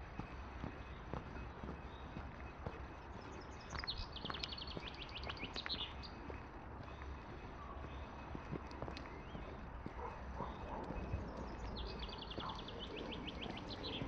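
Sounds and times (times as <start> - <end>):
footsteps on woodland path: 0.0 - 14.0
songbird trilling: 2.8 - 6.2, 10.2 - 14.0.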